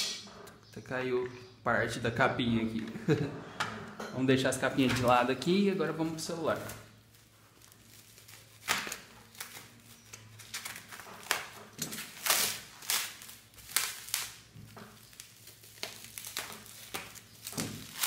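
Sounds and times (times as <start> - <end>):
bubble wrap crinkling: 5.1 - 18.0.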